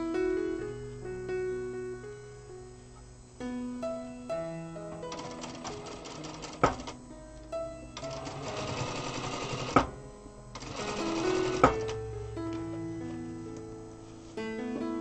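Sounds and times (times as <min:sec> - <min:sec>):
background music with held notes: 0:00.0 - 0:15.0
sewing machine stitching: 0:05.1 - 0:07.0, 0:08.0 - 0:09.9, 0:10.6 - 0:12.0.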